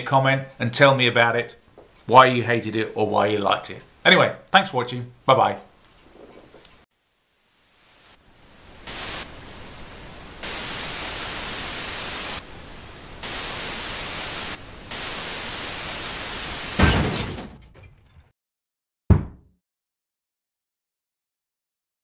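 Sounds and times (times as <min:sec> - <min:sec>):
static-like hiss: 0:00.0 - 0:16.8.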